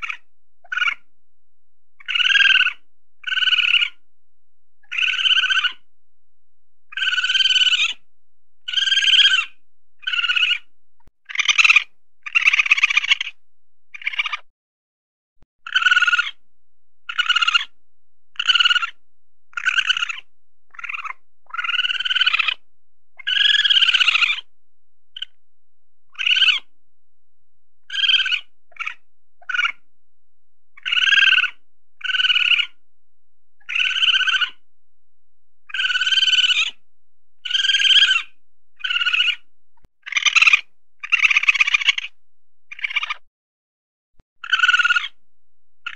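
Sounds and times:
weasel high-pitched calls: 0:00.0 - 0:01.1, 0:02.0 - 0:04.0, 0:04.8 - 0:05.9, 0:06.9 - 0:08.0, 0:08.6 - 0:13.4, 0:14.0 - 0:14.5, 0:15.6 - 0:16.4, 0:17.1 - 0:22.6, 0:23.2 - 0:24.5, 0:25.2 - 0:25.4, 0:26.1 - 0:26.7, 0:27.8 - 0:29.9, 0:30.8 - 0:32.8, 0:33.6 - 0:34.6, 0:35.7 - 0:36.8, 0:37.4 - 0:43.2, 0:44.4 - 0:45.2.

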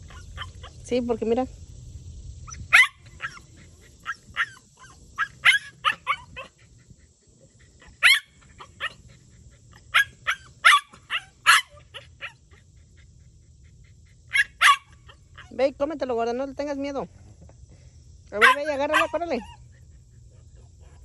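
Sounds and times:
small dog yapping: 0:00.0 - 0:00.8, 0:02.5 - 0:06.7, 0:07.8 - 0:09.1, 0:09.7 - 0:12.6, 0:14.3 - 0:15.6, 0:18.4 - 0:19.6.

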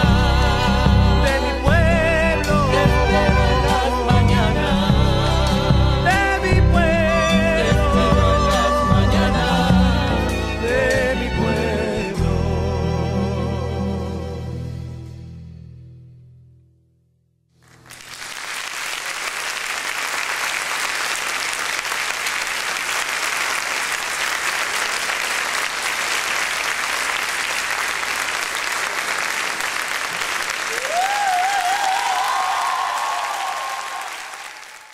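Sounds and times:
audience applauding: 0:17.6 - 0:34.9
person cheering: 0:30.6 - 0:34.9.

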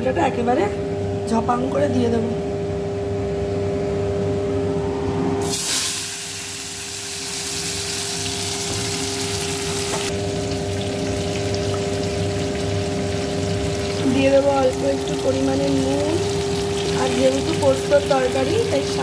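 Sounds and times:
vegetables sizzling in hot oil: 0:05.4 - 0:19.0.

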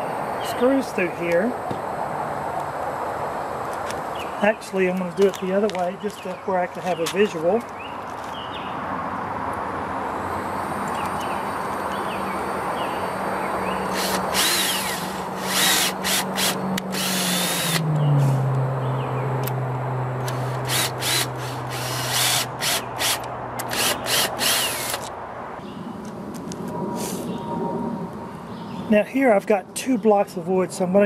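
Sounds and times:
cordless drill motor whine: 0:13.8 - 0:17.8, 0:20.2 - 0:25.1.

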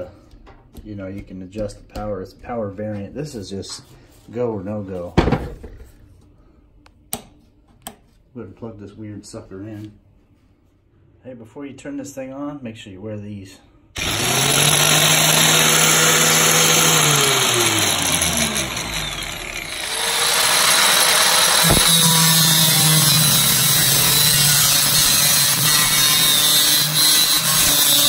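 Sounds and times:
angle grinder running: 0:14.0 - 0:28.0
grinding wheel on sheet metal: 0:14.0 - 0:28.0.

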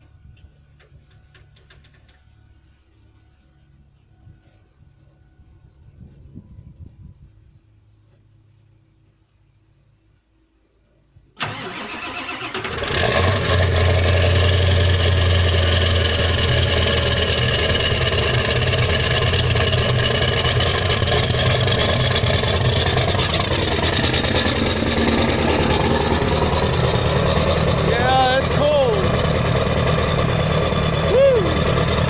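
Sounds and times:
diesel engine idling: 0:11.4 - 0:32.0.

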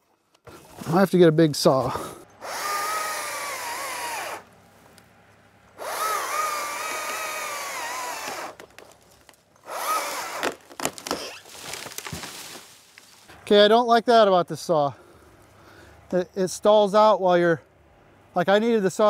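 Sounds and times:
battery chainsaw whine: 0:01.8 - 0:04.5, 0:05.7 - 0:08.7, 0:09.6 - 0:11.5.

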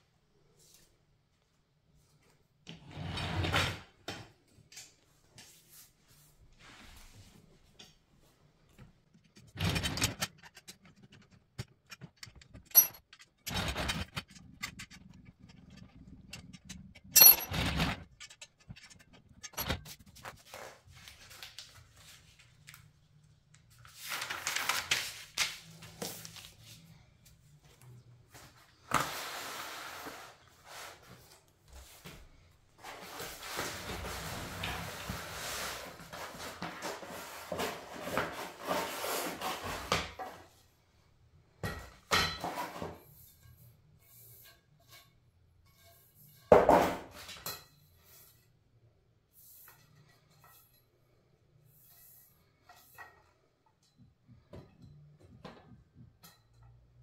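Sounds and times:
metal tubes clinking and knocking: 0:09.2 - 0:20.2.

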